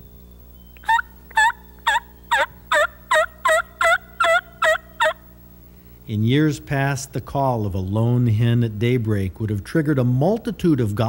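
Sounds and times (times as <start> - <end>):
turkey call yelps: 0.8 - 5.2.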